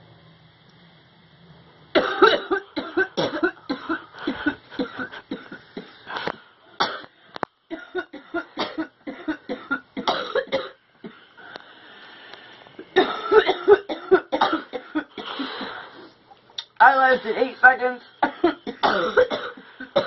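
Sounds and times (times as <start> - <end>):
person coughing harshly: 2.0 - 6.0, 6.8 - 7.1, 7.7 - 11.2, 12.9 - 15.7, 18.2 - 20.0.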